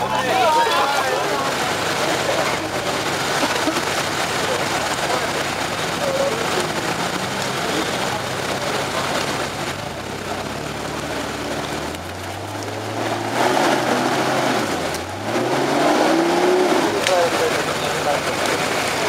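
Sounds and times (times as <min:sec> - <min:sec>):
off-road vehicle engine revving: 0:00.0 - 0:19.0.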